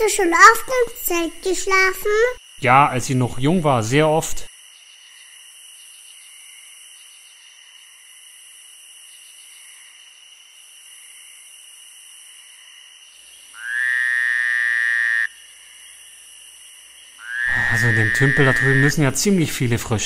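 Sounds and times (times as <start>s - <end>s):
insects chirping: 0.0s - 20.0s
frog croak: 13.5s - 19.3s.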